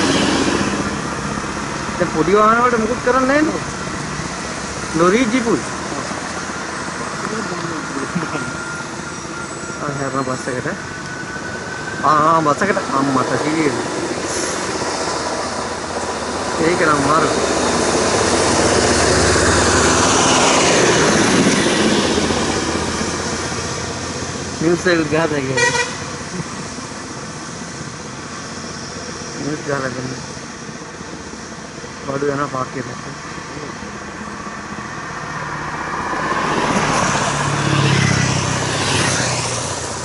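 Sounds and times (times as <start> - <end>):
bus driving past: 0.0 - 40.0
car driving past: 34.9 - 40.0.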